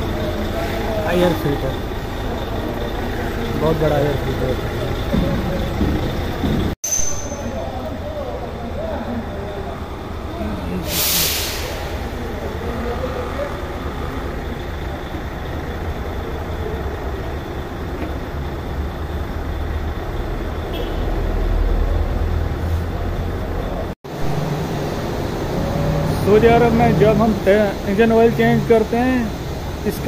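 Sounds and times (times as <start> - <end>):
heavy vehicle engine rumbling: 0.0 - 30.0
faint voices: 7.4 - 17.5.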